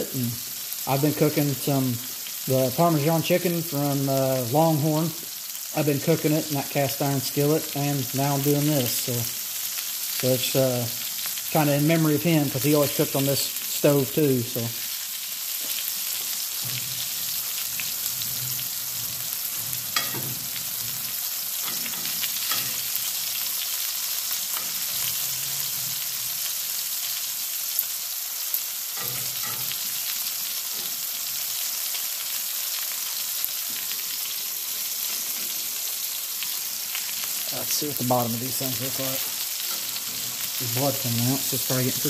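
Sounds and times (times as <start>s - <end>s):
steaks sizzling in a skillet: 0.0s - 42.0s
tongs clicking on cast iron: 17.7s - 23.0s.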